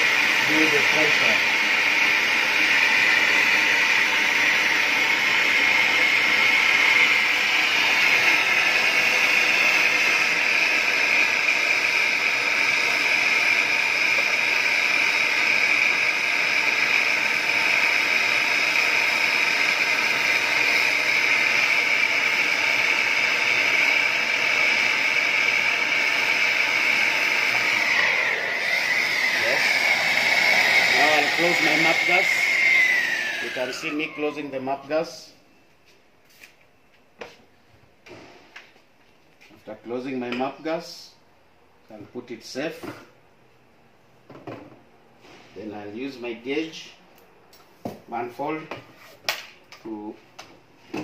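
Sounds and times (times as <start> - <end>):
gas torch hissing: 0.0 - 34.6.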